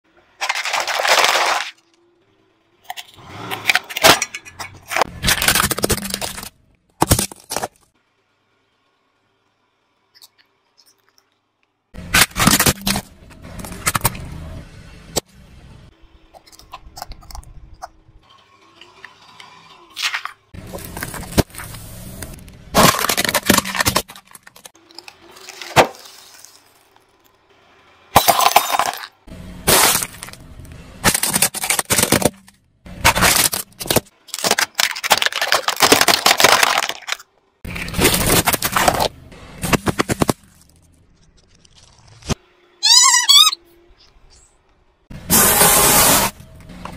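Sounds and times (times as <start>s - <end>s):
tyre crushing objects: 3.5s - 7.8s, 20.0s - 26.8s, 28.2s - 30.4s, 31.0s - 40.8s.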